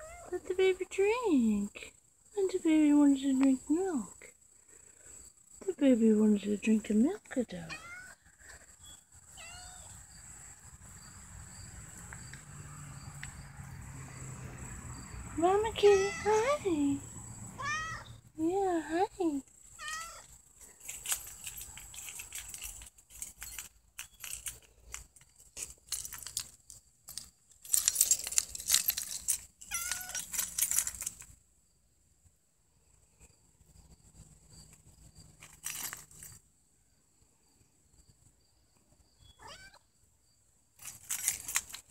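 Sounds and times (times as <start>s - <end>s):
cat meowing: 0.0s - 0.3s, 7.7s - 8.2s, 9.3s - 10.0s, 17.6s - 18.2s, 19.8s - 20.3s, 39.4s - 39.8s
kitten meowing: 17.6s - 18.1s, 39.4s - 39.8s
crackly rustling: 19.4s - 31.4s, 34.1s - 36.4s, 40.8s - 41.9s.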